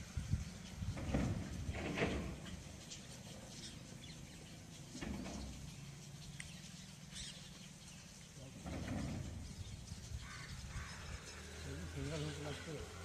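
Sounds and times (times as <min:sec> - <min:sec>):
faint bird chirps: 0:02.4 - 0:12.6.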